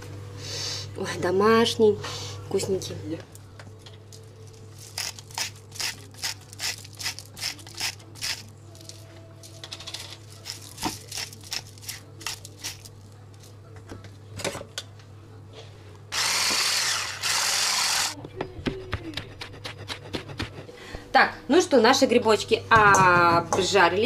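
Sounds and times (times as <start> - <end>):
knife chopping on cutting board: 18.6 - 20.7.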